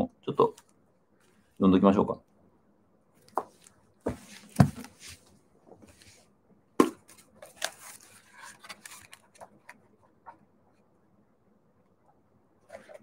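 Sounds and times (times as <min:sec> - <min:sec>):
book knocking on surface: 0:04.1 - 0:04.9
book pages rustling: 0:06.9 - 0:10.4, 0:12.7 - 0:13.0.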